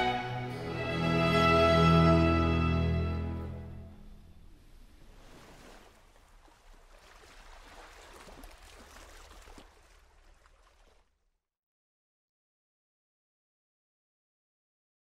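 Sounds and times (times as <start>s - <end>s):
boat wake rushing and splashing: 4.3s - 11.1s.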